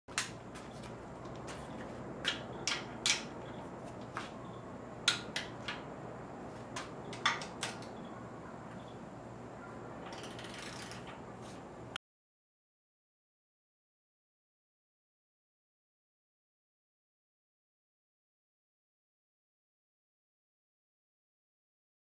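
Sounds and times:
low background hum: 0.1s - 12.0s
socket ratchet clicking: 10.1s - 11.0s.

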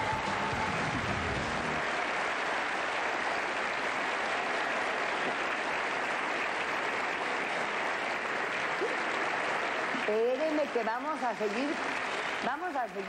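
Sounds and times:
music: 0.0s - 1.9s
audience applauding: 0.0s - 13.0s.

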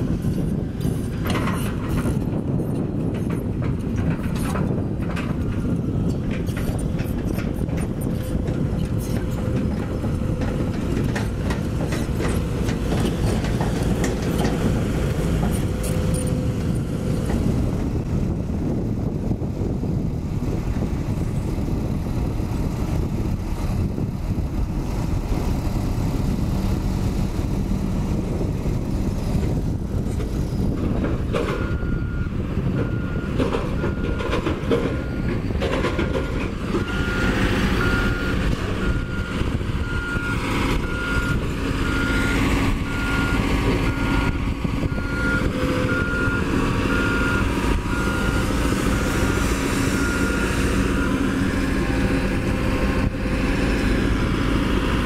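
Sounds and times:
diesel engine rumble: 0.0s - 55.0s
reversing alarm beeping: 31.5s - 35.4s, 36.8s - 52.4s.

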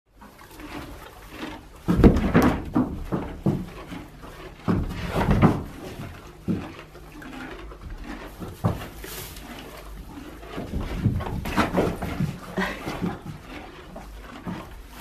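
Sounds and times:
knocks on wooden stall boards: 1.9s - 3.8s, 4.7s - 6.6s.

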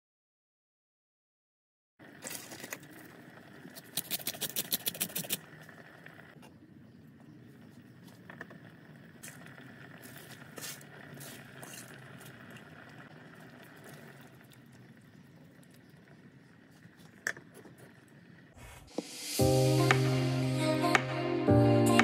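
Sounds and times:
soup bubbling: 9.0s - 18.8s
background music: 19.0s - 22.0s.

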